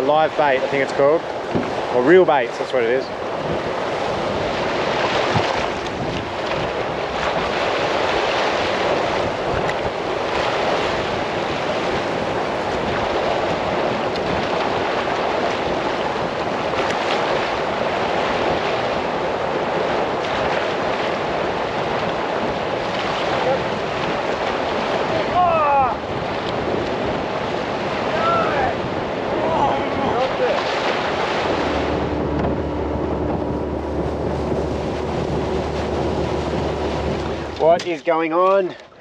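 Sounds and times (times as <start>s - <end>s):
waves rushing: 0.0s - 39.0s
wind: 0.0s - 39.0s.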